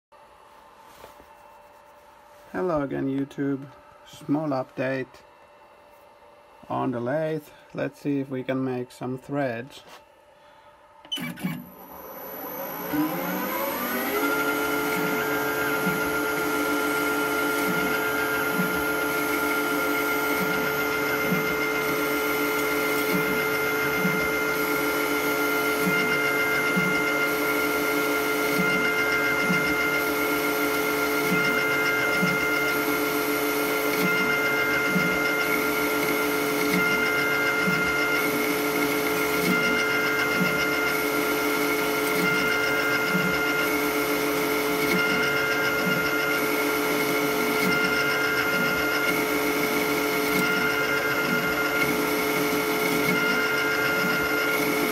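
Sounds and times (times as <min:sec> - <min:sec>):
lathe spindle whining: 0:11.0 - 0:54.9.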